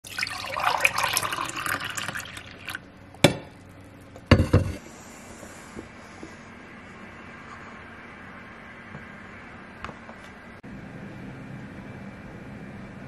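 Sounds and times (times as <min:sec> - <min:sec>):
coffee pouring into a mug: 0:00.0 - 0:02.8.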